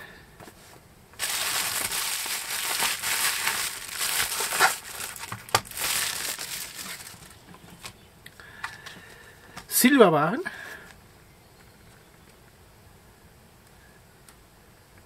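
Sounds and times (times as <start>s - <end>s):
bubble wrap crinkling: 1.2s - 8.0s.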